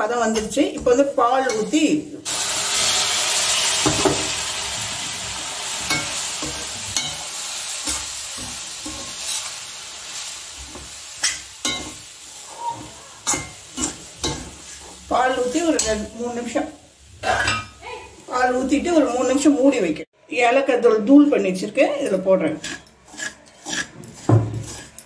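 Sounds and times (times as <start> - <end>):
milk sizzling in hot pan: 0.2 - 19.8
ladle scraping pan: 22.4 - 25.0.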